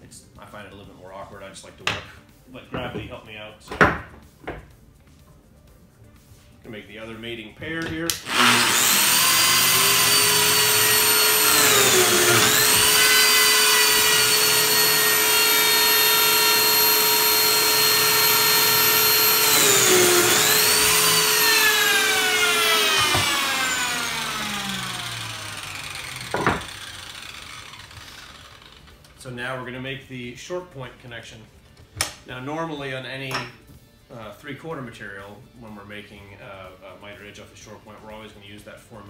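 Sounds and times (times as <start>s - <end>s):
slot cutter motor running: 8.2s - 29.2s.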